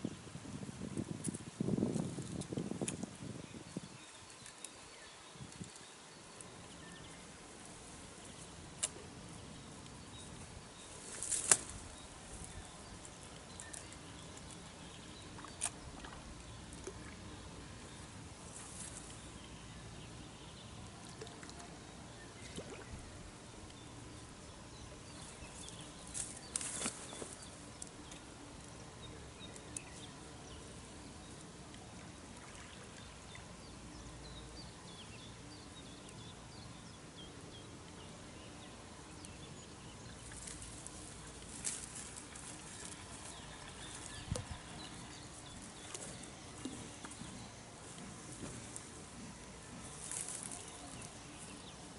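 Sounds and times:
quiet riverside background: 0.0 - 51.9.

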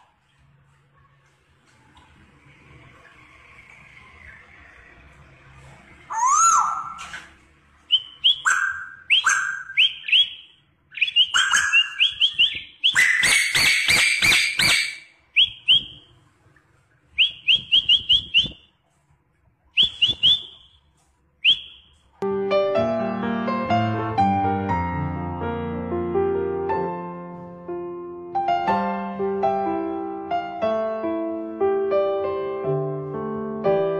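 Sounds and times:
songbird singing: 7.9 - 16.2, 17.1 - 18.7, 19.7 - 20.8.

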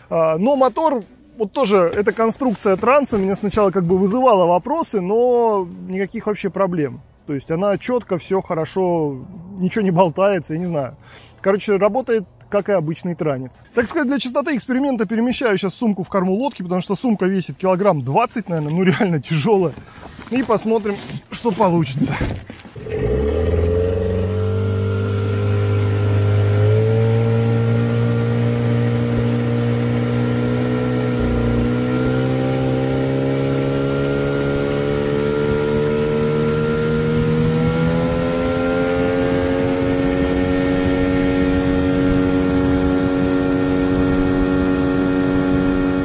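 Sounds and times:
outboard motor running hard: 22.8 - 37.2, 38.9 - 46.0.

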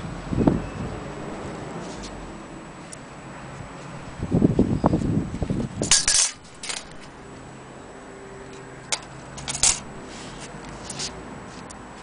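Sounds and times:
sharp handling clicks and rustles: 5.0 - 7.5, 8.5 - 12.0.

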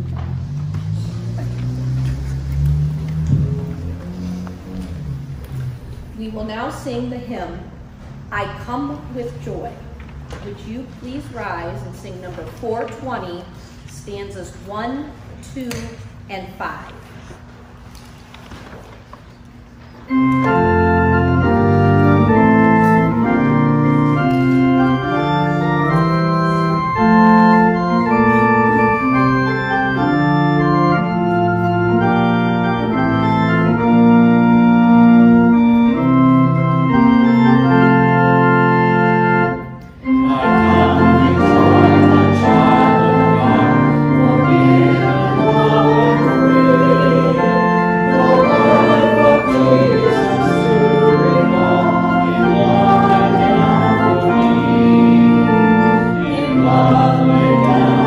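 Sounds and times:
church organ playing hymn: 0.0 - 13.8, 17.9 - 58.0
congregation singing a hymn: 20.1 - 58.0.

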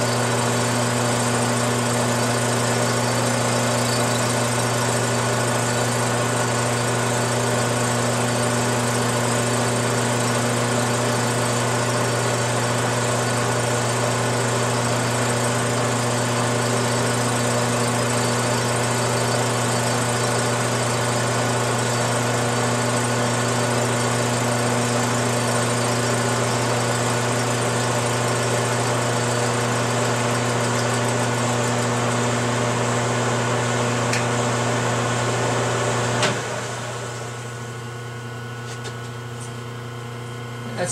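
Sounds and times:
cutting tool facing metal: 0.0 - 6.0
metal lathe motor hum: 0.0 - 40.9.

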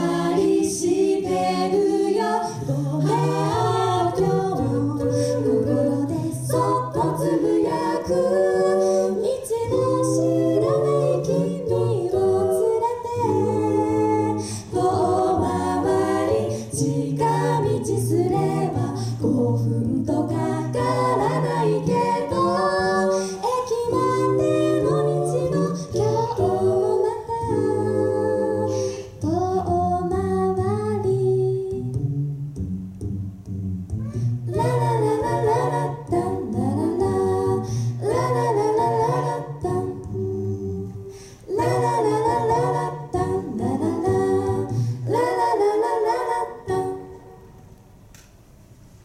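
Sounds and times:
a cappella group singing: 0.0 - 32.7, 33.9 - 47.8.

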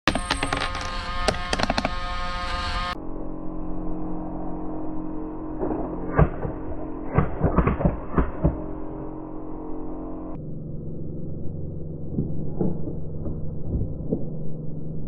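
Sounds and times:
small motor humming: 0.1 - 3.0.

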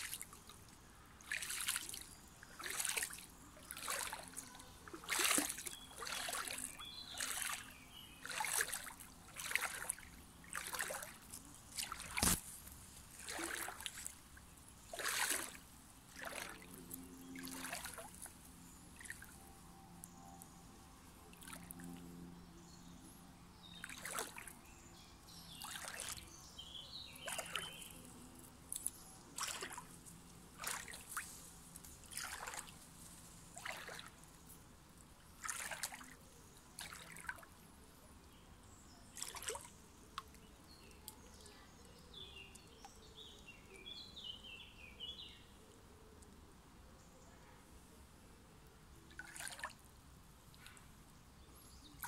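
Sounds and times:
splashing gurgles: 0.0 - 0.6, 1.2 - 12.4, 13.1 - 14.2, 14.8 - 18.3, 23.8 - 24.6, 25.6 - 26.2, 27.2 - 27.8, 29.4 - 29.9, 30.5 - 31.2, 32.0 - 32.8, 33.5 - 34.2, 35.4 - 36.2, 36.8 - 37.4, 39.2 - 39.7, 49.1 - 49.8
stream trickling over pebbles: 0.0 - 23.0, 23.6 - 37.6, 38.3 - 44.0, 48.9 - 52.0.

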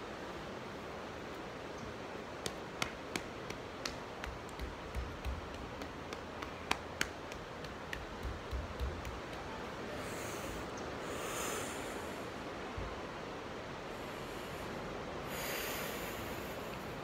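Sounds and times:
background hiss: 0.0 - 17.0
taps and clicks on wooden floor: 2.4 - 9.5.

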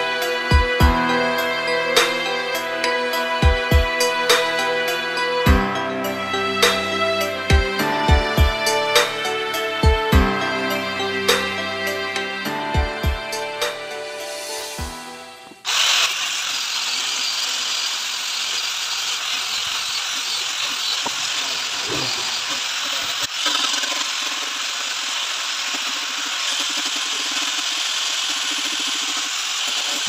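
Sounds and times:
background music: 0.0 - 15.6
orbital sander on wood: 15.5 - 30.0.

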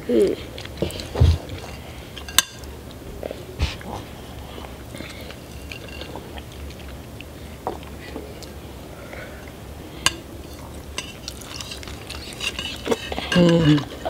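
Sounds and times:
plate being handled: 5.3 - 6.2, 10.0 - 14.0
forks clicking in noodle cups: 11.0 - 14.0.

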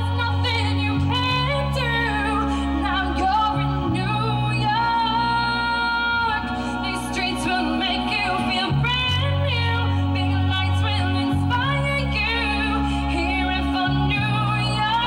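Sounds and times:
backing music with held bass: 0.0 - 15.0
woman singing into microphone: 0.0 - 15.0.

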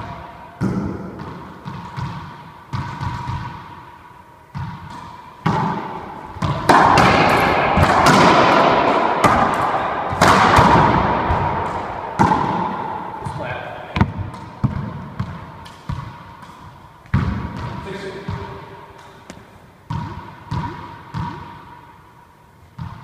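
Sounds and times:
racquet striking ball: 0.0 - 22.0, 22.8 - 23.0
ball bouncing on wooden floor: 0.6 - 3.8, 4.5 - 21.6
ball smacking off walls: 4.6 - 17.7.

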